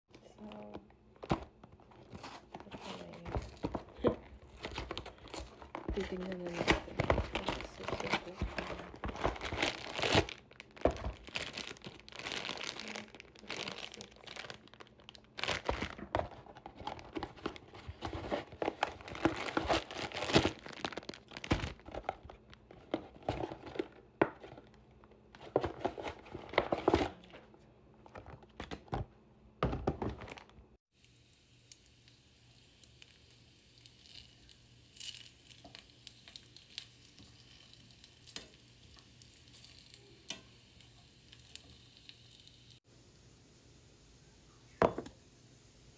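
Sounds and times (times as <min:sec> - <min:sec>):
plastic bag crackling and rustling: 0:00.4 - 0:24.8
dumplings sizzling in a pan: 0:30.9 - 0:44.0.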